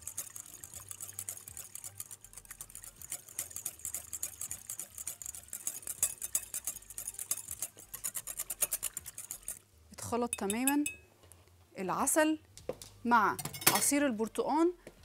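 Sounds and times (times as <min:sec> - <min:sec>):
whisk ticking against glass bowl: 0:00.0 - 0:09.6, 0:10.3 - 0:11.0.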